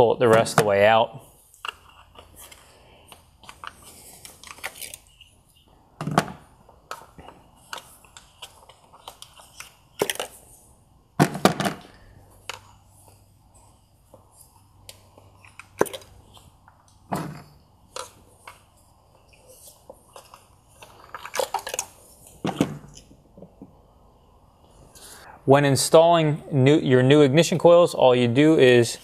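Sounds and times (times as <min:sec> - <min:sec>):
plastic parts clicking and knocking: 0:06.0 - 0:10.4, 0:20.1 - 0:23.8.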